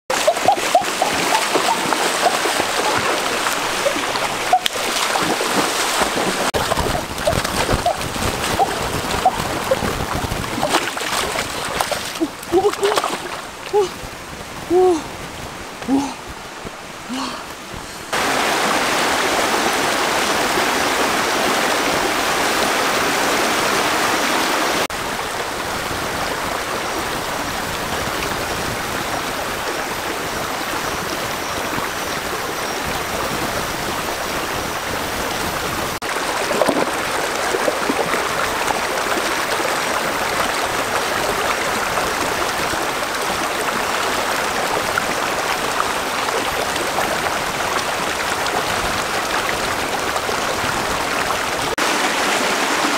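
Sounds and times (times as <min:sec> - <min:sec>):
stream rushing over stones: 0:00.0 - 0:52.9
feet splashing in water: 0:00.1 - 0:13.9, 0:36.0 - 0:40.6.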